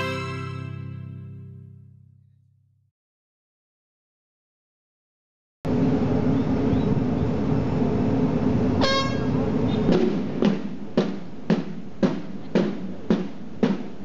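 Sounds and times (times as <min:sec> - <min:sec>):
outdoor rumble: 0:05.7 - 0:14.0
short horn toot: 0:08.8 - 0:09.3
marching band drums: 0:09.9 - 0:14.0.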